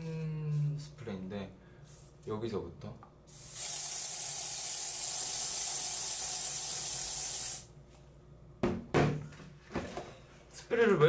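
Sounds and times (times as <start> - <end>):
aerosol hairspray hissing: 3.4 - 7.7.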